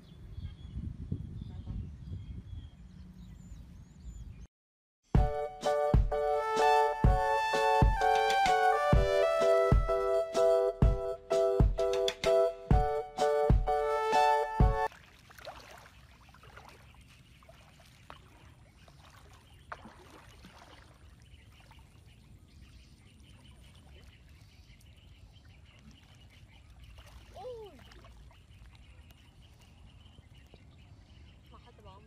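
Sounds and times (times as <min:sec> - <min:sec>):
music jingle: 0:05.2 - 0:14.9
wading through shallow water: 0:14.8 - 0:32.0.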